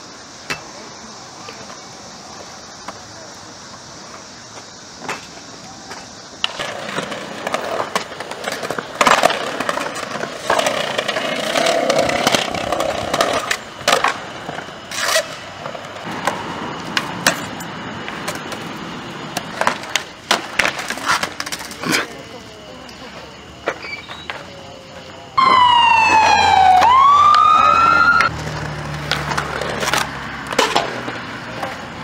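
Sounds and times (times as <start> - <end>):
skateboard wheels rolling on concrete: 0.0 - 32.0
skateboard clacks popping and landing: 5.0 - 15.2, 19.3 - 21.9.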